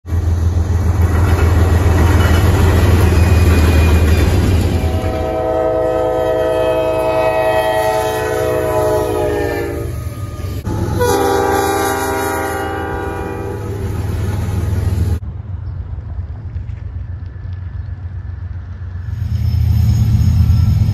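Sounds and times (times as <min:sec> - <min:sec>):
locomotive engine rumble: 0:00.1 - 0:20.9
locomotive air horn blast: 0:04.8 - 0:14.4.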